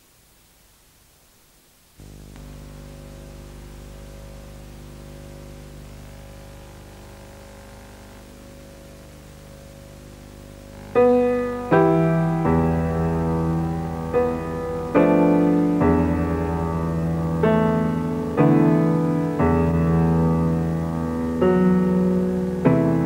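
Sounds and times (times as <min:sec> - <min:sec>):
soft held chord: 0:02.0 - 0:23.0
loud piano chords: 0:11.0 - 0:23.0.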